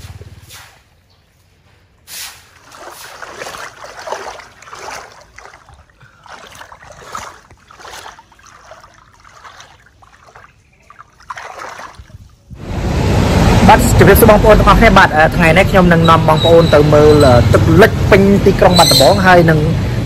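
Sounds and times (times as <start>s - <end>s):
water splashing and sloshing: 1.8s - 12.6s.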